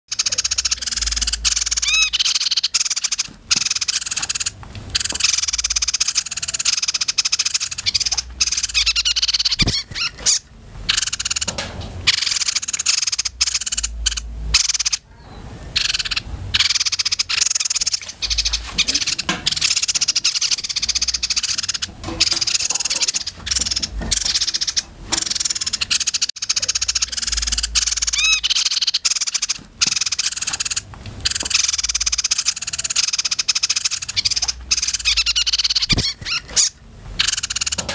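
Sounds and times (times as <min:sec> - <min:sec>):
songbirds chattering trills: 0:00.1 - 0:37.9.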